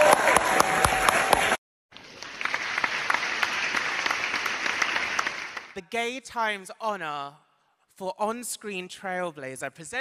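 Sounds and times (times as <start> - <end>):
audience applause: 0.0 - 5.8.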